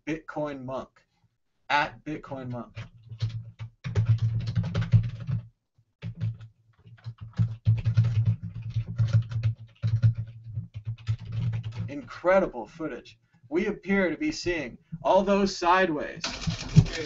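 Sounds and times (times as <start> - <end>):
typing on computer keyboard: 2.7 - 11.9, 16.2 - 17.0.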